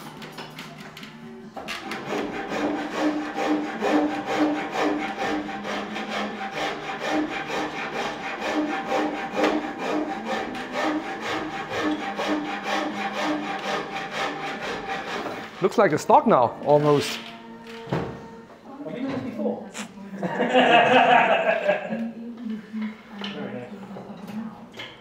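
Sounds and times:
hand file rasping wood: 1.8s - 15.8s.

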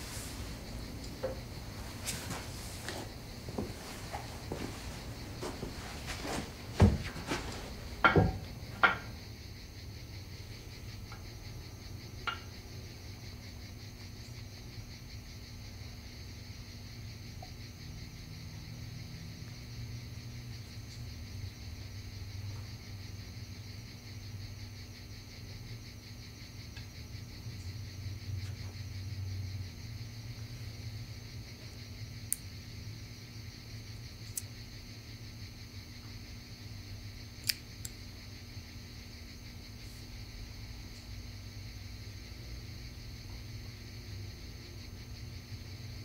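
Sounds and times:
low steady hum: 0.0s - 17.9s
high drone of insects: 0.0s - 46.0s
sharp knocks: 5.4s - 9.2s.

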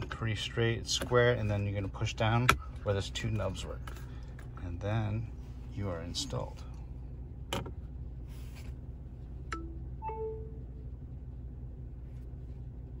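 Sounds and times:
phone charging chime: 9.6s - 10.6s.

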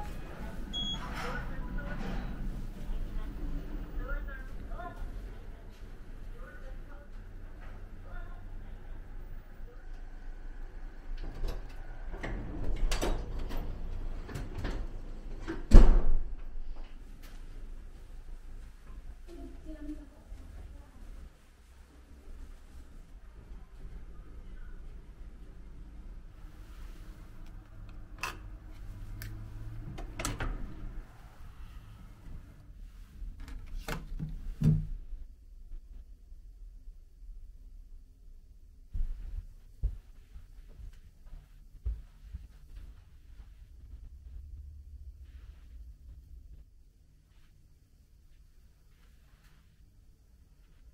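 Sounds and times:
door shutting with a thud: 11.3s - 16.6s.

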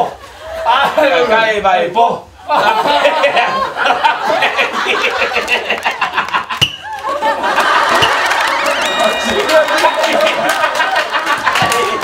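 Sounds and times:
group of men laughing: 2.4s - 12.0s.

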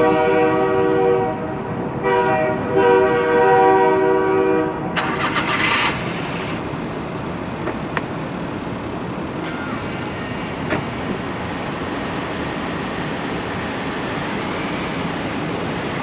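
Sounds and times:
horn blasts: 0.0s - 5.1s
loud hiss: 9.4s - 15.5s.

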